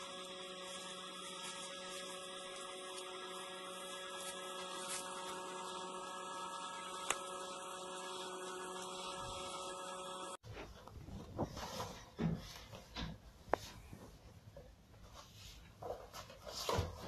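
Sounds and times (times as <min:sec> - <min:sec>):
steady hum of held tones: 0:00.0 - 0:10.4
uneven irregular sounds: 0:00.0 - 0:12.0.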